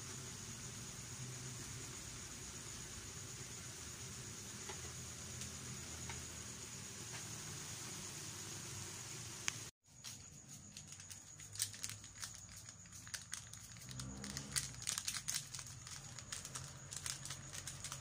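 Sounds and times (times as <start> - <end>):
plastic sachets crinkling: 10.1 - 18.0.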